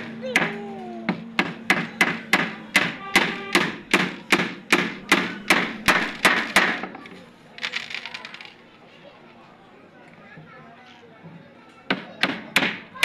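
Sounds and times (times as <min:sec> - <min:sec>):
claw hammer striking wooden board: 0:00.4 - 0:07.0, 0:11.9 - 0:13.0.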